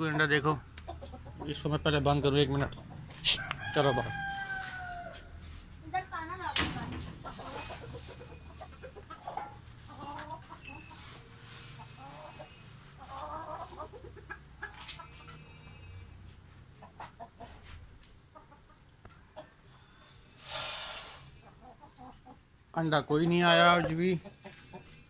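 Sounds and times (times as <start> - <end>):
chickens clucking: 0.0 - 5.4, 6.4 - 20.5, 21.2 - 25.0
wire-mesh door clicks and knocks: 6.4 - 7.4.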